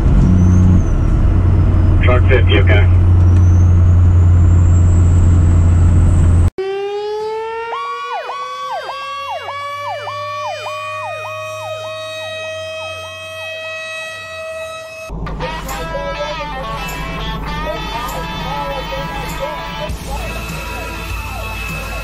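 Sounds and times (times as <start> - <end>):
fire truck engine droning: 0.0 - 22.0
electronic siren sweeping: 3.2 - 22.0
mechanical siren wailing: 6.6 - 22.0.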